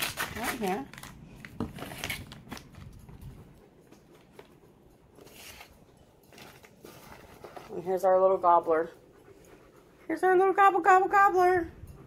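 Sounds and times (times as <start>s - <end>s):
plastic wrapping rustling: 0.0s - 3.2s, 5.2s - 7.9s.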